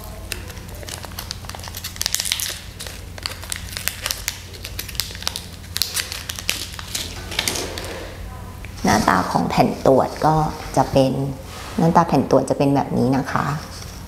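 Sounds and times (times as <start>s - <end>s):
foil pouch crinkling: 0.0s - 7.6s.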